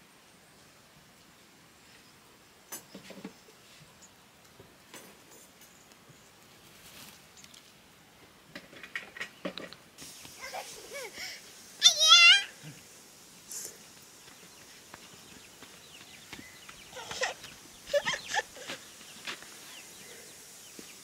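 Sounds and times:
chickens clucking: 0:15.0 - 0:20.4.

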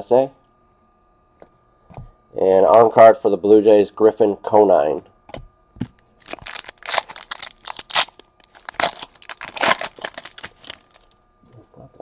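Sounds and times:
foil wrapper tearing and crinkling: 0:06.2 - 0:11.2.

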